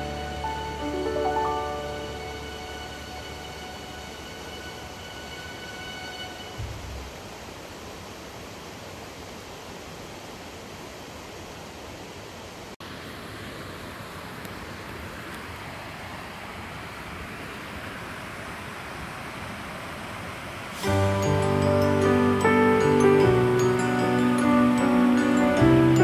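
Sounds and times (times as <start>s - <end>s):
creek water rushing: 0.0s - 26.0s.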